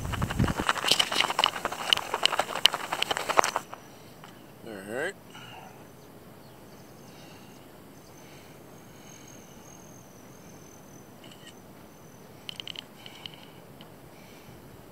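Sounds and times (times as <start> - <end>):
high insect buzz: 0.0 - 4.8, 6.8 - 13.7.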